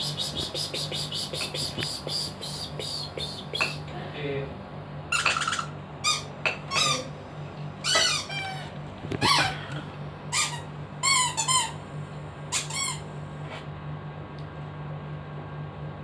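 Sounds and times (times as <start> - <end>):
low hum: 0.0 - 14.5
dog whining: 5.1 - 7.1, 7.8 - 11.8.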